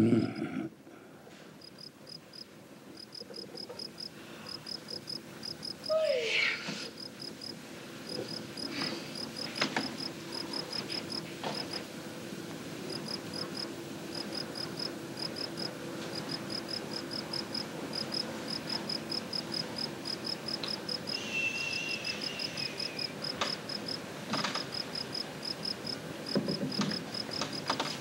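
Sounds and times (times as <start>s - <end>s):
crickets chirping: 1.6s - 11.9s, 12.7s - 28.0s
falling whistle-like tone: 21.1s - 23.1s.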